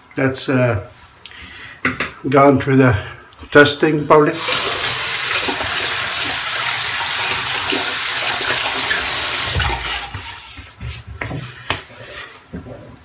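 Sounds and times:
sink tap running: 4.4s - 10.5s.

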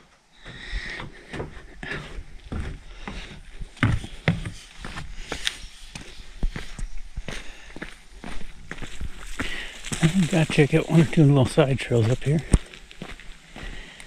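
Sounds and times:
footsteps on wood and rock: 0.0s - 14.0s.

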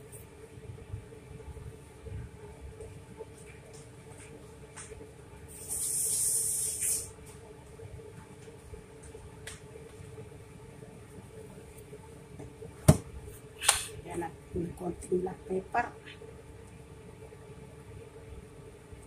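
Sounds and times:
aerosol spray hissing: 5.6s - 7.1s.

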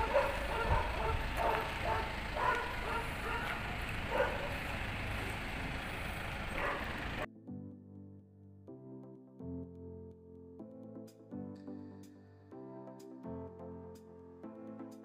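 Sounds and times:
steady low rumbling: 0.0s - 7.3s
background music: 5.6s - 15.0s.

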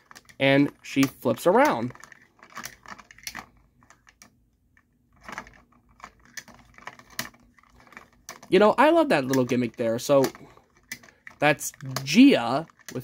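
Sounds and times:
plastic toy clicking and rattling: 0.0s - 13.0s.

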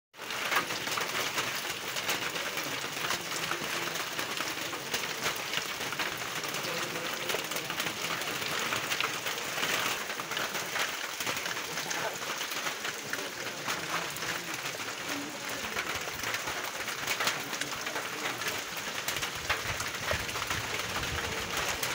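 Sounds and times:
rain on wet pavement: 0.1s - 21.9s.

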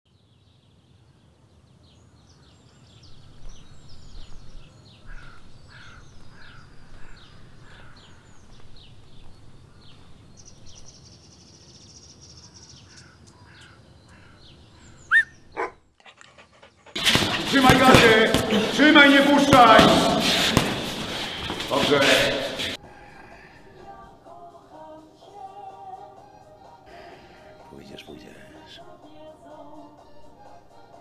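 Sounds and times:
birds chirping: 0.4s - 24.1s, 27.0s - 28.9s
crow cawing: 5.0s - 8.3s, 12.9s - 15.2s, 22.8s - 23.7s
short sharp loud sounds: 17.0s - 22.8s.

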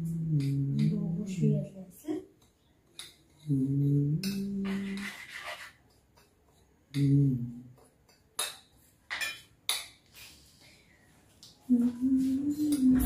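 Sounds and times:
spoon scraping container: 4.6s - 5.9s
spoon clinking containers: 7.8s - 10.0s.

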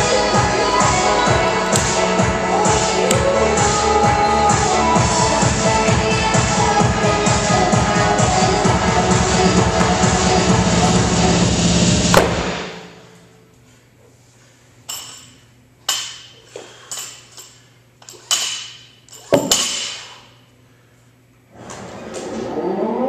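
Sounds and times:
electronic music: 0.0s - 13.0s.

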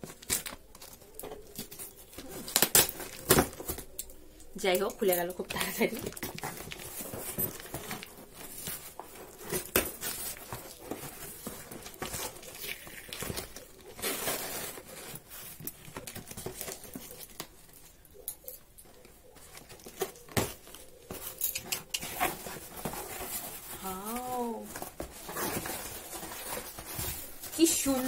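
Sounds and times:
cardboard and paper rustling tearing: 0.0s - 4.0s, 4.6s - 18.0s, 18.8s - 28.0s
small knocks and scrapes: 5.5s - 28.0s.

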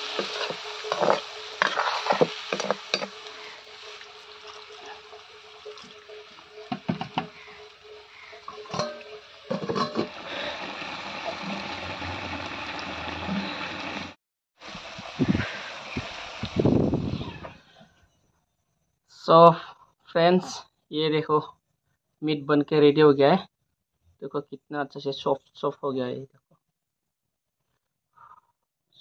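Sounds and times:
metal ladle scraping wok: 0.0s - 12.4s
meat and gravy frying: 0.0s - 17.5s.

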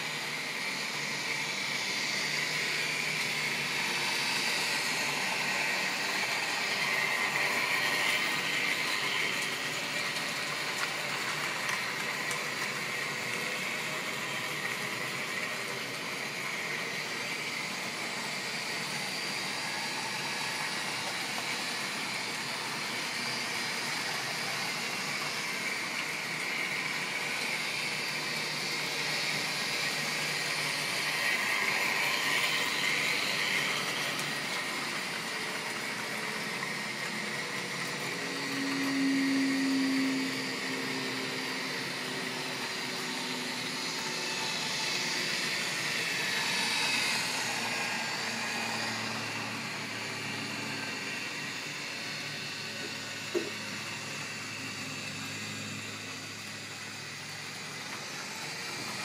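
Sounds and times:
model train motor whirring: 0.0s - 59.0s.

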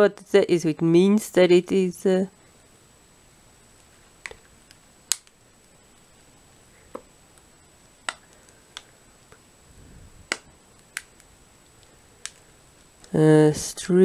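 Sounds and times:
sharp clicks from handling objects: 10.3s - 13.1s.

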